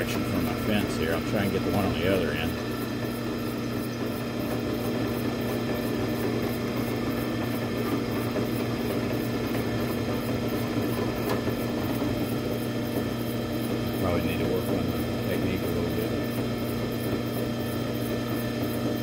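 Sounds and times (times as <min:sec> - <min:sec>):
drill press humming: 0:00.0 - 0:19.0.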